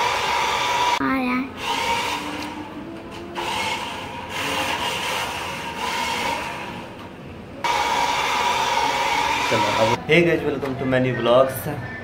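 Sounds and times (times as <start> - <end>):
toy car electric motor whine: 1.6 - 2.6, 3.3 - 6.7, 7.7 - 10.0.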